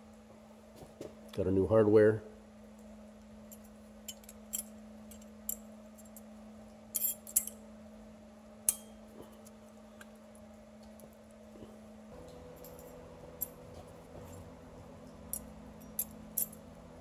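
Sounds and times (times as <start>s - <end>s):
low hum: 2.2s - 17.0s.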